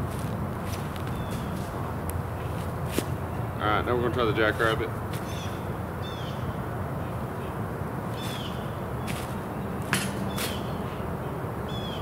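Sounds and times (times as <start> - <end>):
low rumble of wind: 0.0 - 12.0
bird chirping: 8.1 - 9.4.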